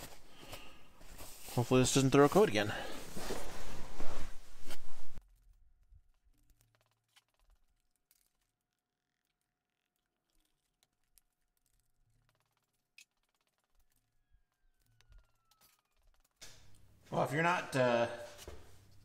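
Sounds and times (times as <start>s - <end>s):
clothing rustling on microphone: 0.0s - 5.2s.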